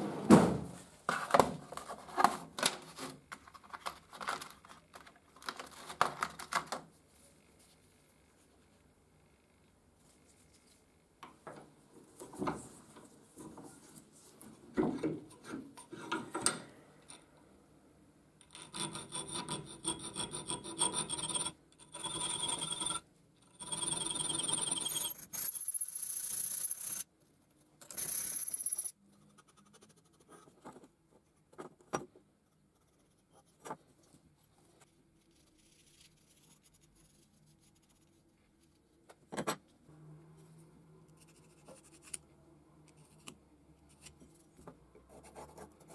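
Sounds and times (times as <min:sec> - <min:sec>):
file rasping on steel: 0:18.5 - 0:21.4.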